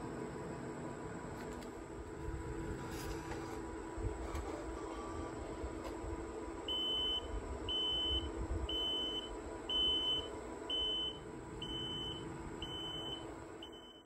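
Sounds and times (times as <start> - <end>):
steady low hum: 0.0 - 14.0
machine beeping: 4.4 - 5.8, 6.6 - 14.0.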